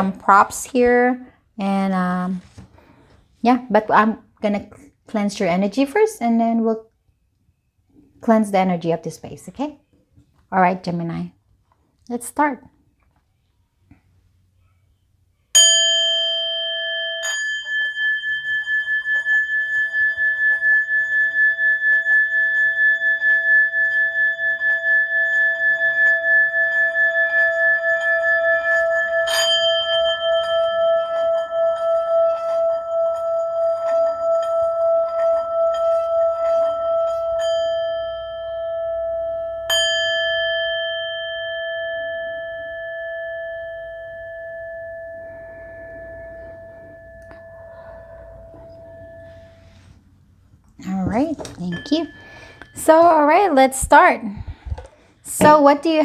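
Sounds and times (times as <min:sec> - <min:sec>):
metal singing bowl ringing: 0:15.5 - 0:50.0, 0:50.8 - 0:54.1.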